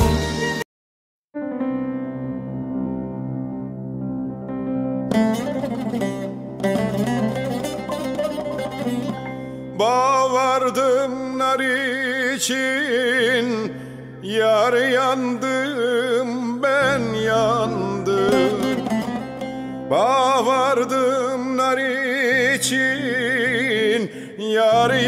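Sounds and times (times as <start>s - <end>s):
plucked strings: 5.1s - 10.7s, 16.8s - 21.3s
person singing with vibrato: 8.6s - 25.0s.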